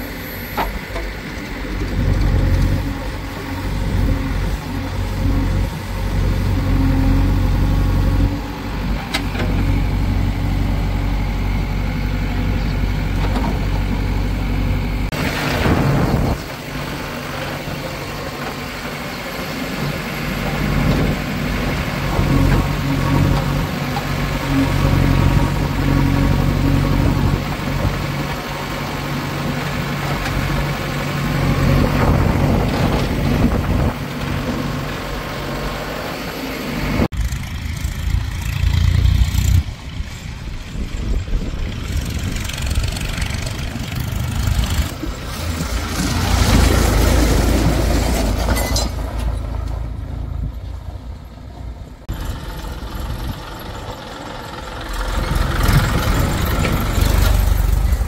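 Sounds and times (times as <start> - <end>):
diesel engines running: 0.0 - 58.0
loud rush of noise: 14.9 - 22.0.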